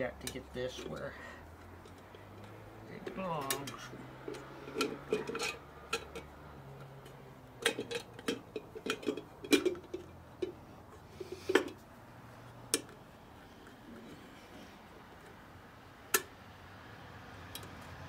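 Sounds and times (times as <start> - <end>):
light metallic clicks and clinks: 0.2 - 11.8.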